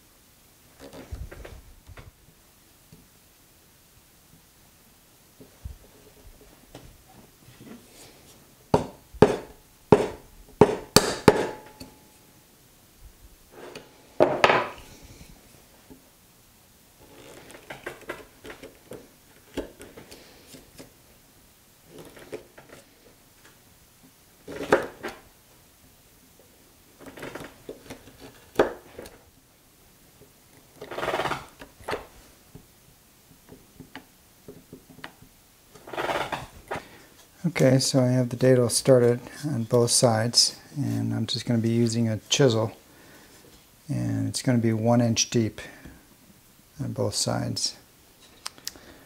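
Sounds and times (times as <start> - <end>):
chisel scraping wood: 30.8 - 31.6, 35.8 - 36.8.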